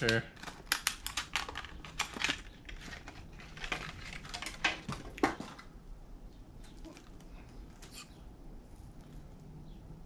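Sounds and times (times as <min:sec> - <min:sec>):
plastic package crackling: 0:00.0 - 0:05.3
plastic snapping: 0:00.0 - 0:05.5.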